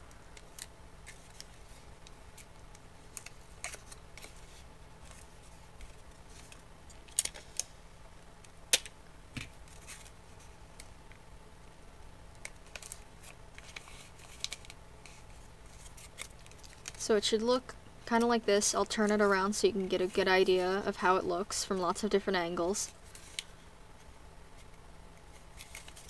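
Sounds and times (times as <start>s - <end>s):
paper rustling: 9.6s - 10.5s, 12.6s - 17.0s, 22.9s - 24.7s, 25.3s - 26.0s.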